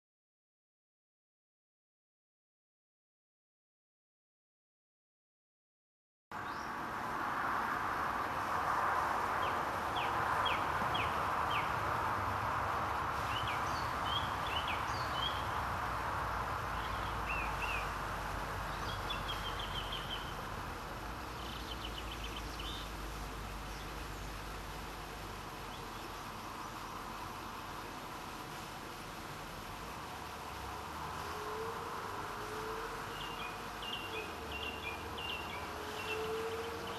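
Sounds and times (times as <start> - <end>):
background hiss: 6.4 - 36.9
small birds chirping and trilling: 9.4 - 11.8, 13.2 - 15.6, 16.3 - 20.5, 21.2 - 24.5, 33.0 - 36.9.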